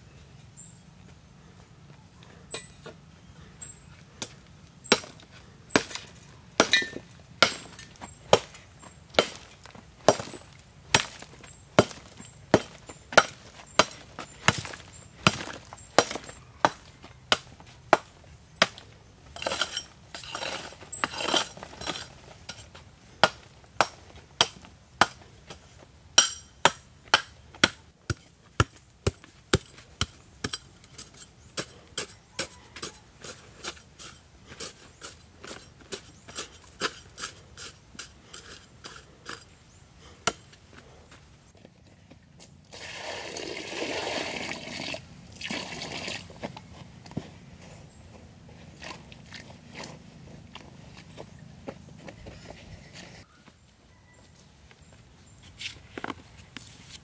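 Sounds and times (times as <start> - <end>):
hoe chopping stony soil: 4.2 - 39.6
loose soil scraping: 19.3 - 22.7, 29.5 - 41.0.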